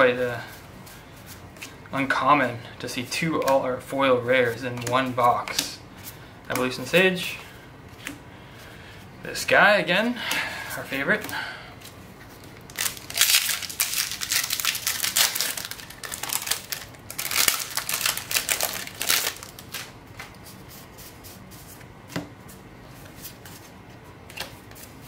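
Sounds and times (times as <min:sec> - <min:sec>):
foil wrapper crinkling and tearing: 0:12.6 - 0:20.0.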